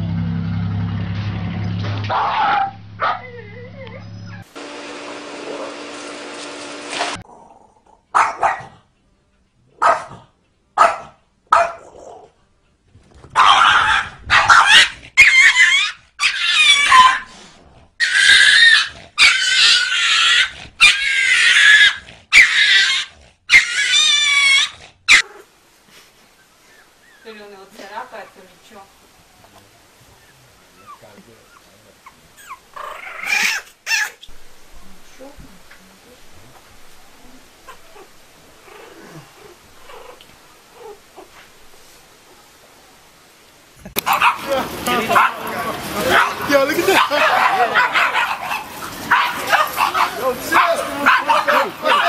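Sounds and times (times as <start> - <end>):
dog yelping and whining: 13.4 - 17.3, 18.0 - 25.4, 30.1 - 34.4, 37.2 - 41.3.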